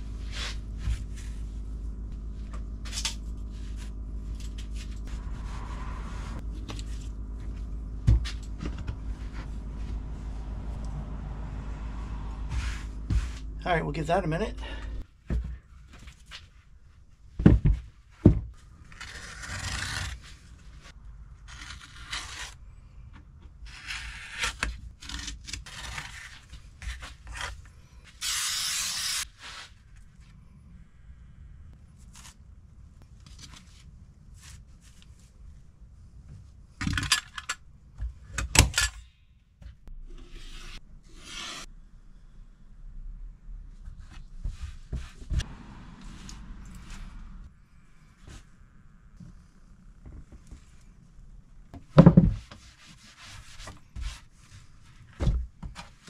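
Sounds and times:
scraping and rubbing by hand: 0.0 - 10.8, 12.2 - 13.8, 52.3 - 55.2.

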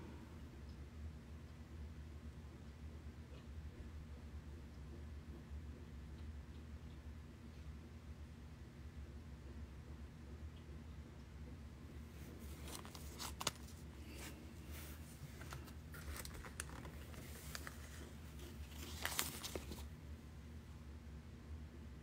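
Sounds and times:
low steady hum: 0.0 - 22.0
rustling and crinkling: 11.9 - 20.0.

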